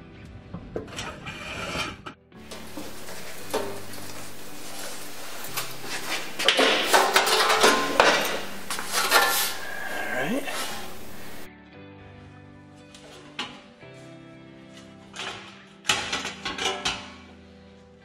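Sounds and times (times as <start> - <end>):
background music: 0.0 - 18.0
sharp metallic clanks: 2.4 - 11.5
sheet metal rattling and clanking: 2.4 - 11.5, 15.2 - 17.2.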